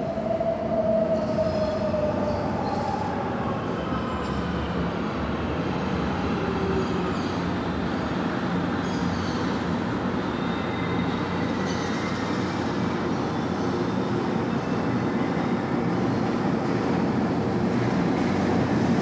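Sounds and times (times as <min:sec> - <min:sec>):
faint high-pitched squeals: 0:00.0 - 0:04.6
electric train rumbling on tracks: 0:00.0 - 0:19.0.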